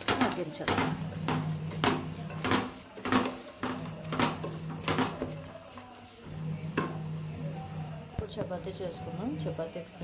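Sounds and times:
spatula scraping a steel pot: 0.0s - 8.0s.

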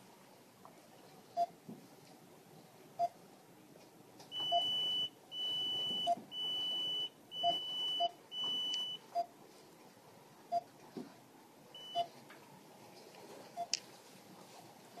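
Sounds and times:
high-pitched alarm beeps: 4.3s - 9.0s.

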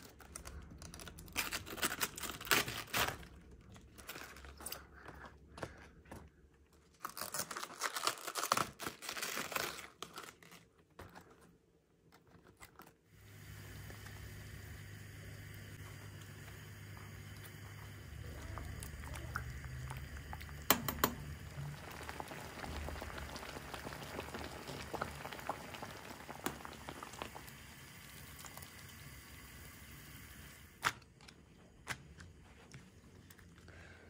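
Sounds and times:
quiet handling sounds: 10.6s - 13.1s
water boiling in a pot: 13.2s - 30.8s
utensil clinking and knocking: 20.6s - 21.4s.

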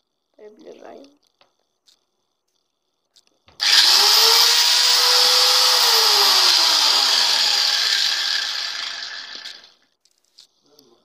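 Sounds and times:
angle grinder whining: 3.6s - 9.8s.

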